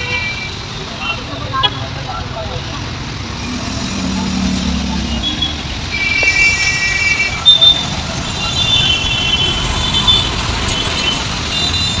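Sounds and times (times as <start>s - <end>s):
traffic engine rumble: 0.0s - 12.0s
vehicle horns honking: 5.0s - 12.0s.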